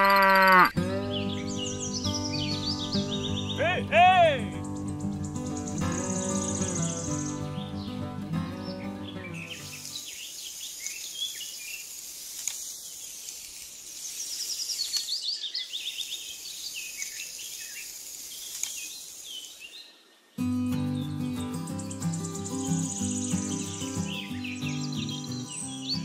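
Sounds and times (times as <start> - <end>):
birds chirping: 0.0 - 26.0
music: 0.8 - 10.0, 20.4 - 26.0
high buzz of insects: 4.6 - 7.9, 9.1 - 15.1, 16.1 - 19.6, 20.8 - 26.0.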